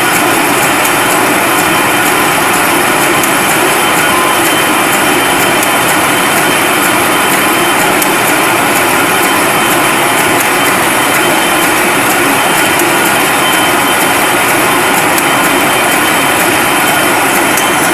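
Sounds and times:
loud machine noise: 0:00.0 - 0:17.9.

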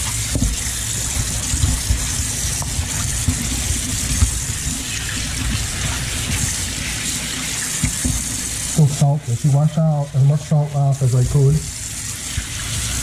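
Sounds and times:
hands rubbing fish in water: 0:00.0 - 0:08.8
tap water running into sink: 0:00.0 - 0:13.0.

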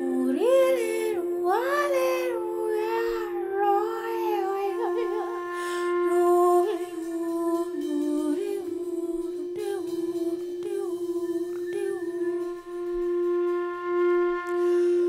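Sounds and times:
wavering sliding high pitches: 0:00.0 - 0:15.0
held tone: 0:02.8 - 0:15.0.

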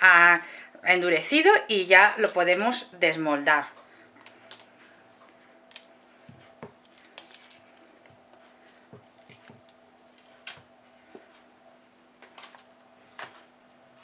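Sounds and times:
silicone mould squishing: 0:04.2 - 0:11.5.

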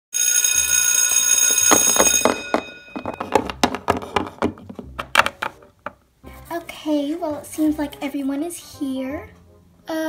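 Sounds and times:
school bell ringing: 0:00.2 - 0:03.4
plastic toys tapping on table: 0:03.0 - 0:06.0.

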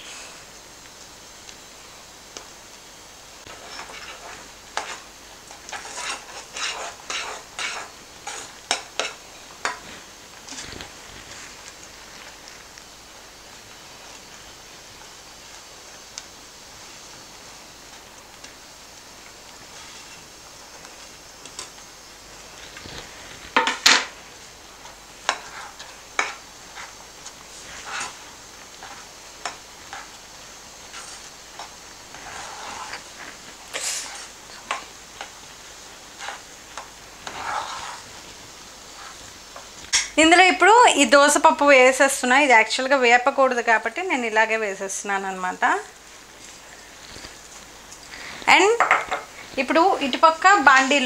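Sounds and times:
utensil stirring and scraping pan: 0:03.4 - 0:12.5, 0:24.7 - 0:40.2.

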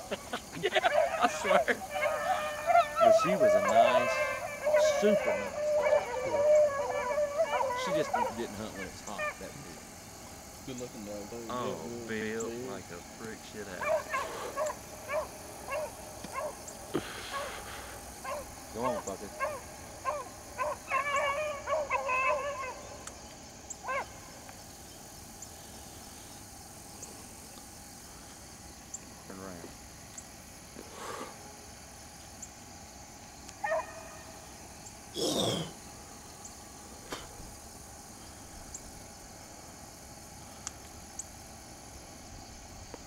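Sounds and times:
hounds barking and baying: 0:00.0 - 0:10.7, 0:11.6 - 0:24.6, 0:31.2 - 0:40.4
insects droning: 0:00.0 - 0:43.0.

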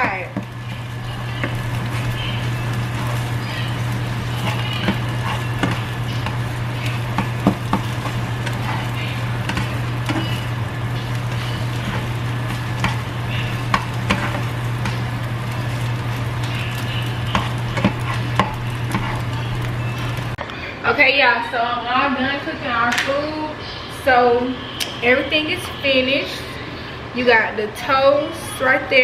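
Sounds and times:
eggs sizzling in a frying pan: 0:00.0 - 0:20.4
steady low hum: 0:00.0 - 0:27.7
plastic turner scraping a pan: 0:17.2 - 0:19.7.

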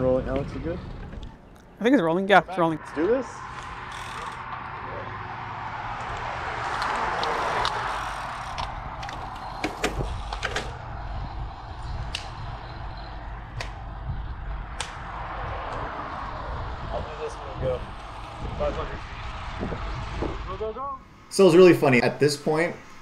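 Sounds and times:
steady low rumble: 0:00.0 - 0:21.3
wind noise rush: 0:02.8 - 0:21.3
bicycle clicks and knocks: 0:06.0 - 0:10.8.

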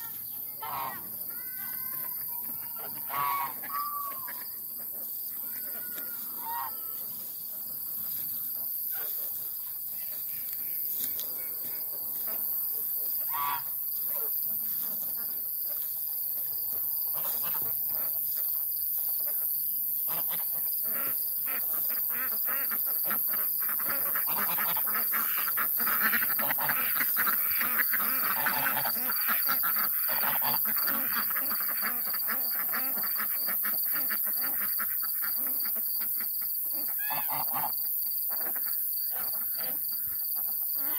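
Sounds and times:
crickets trilling: 0:00.0 - 0:40.9
ducks quacking: 0:00.5 - 0:01.2, 0:02.8 - 0:07.0, 0:13.2 - 0:15.8, 0:20.1 - 0:40.9
geese honking: 0:00.6 - 0:01.1, 0:02.9 - 0:07.2, 0:13.2 - 0:13.7, 0:20.1 - 0:35.8, 0:36.8 - 0:39.8.

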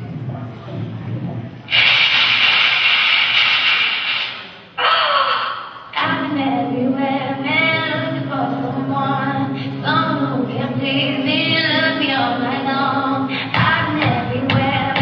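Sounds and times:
held low chords: 0:05.9 - 0:15.0.

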